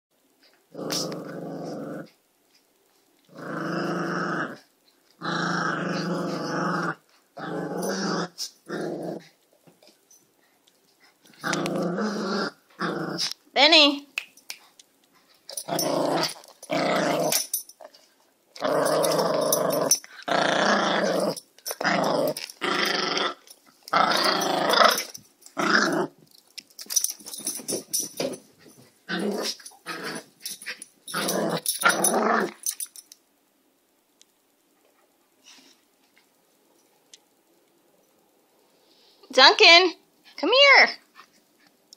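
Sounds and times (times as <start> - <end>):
small dogs growling: 0.7 - 2.2, 3.2 - 9.4, 11.2 - 13.4, 15.5 - 18.0, 18.6 - 26.2, 27.3 - 32.8.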